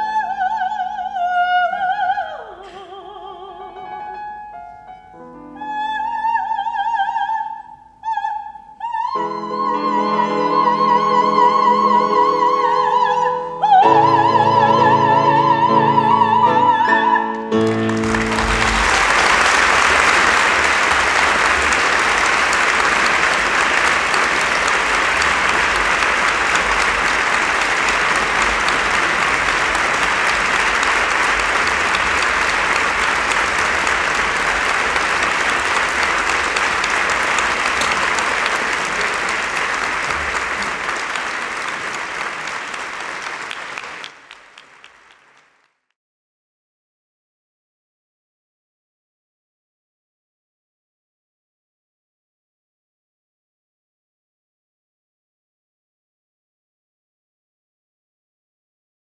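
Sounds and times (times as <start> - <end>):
audience applauding: 17.5 - 45.8.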